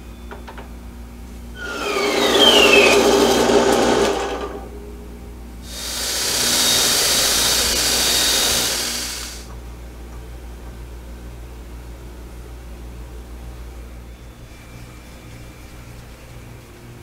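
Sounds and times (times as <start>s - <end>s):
bandsaw cutting steel: 1.6s - 4.8s, 5.7s - 9.5s.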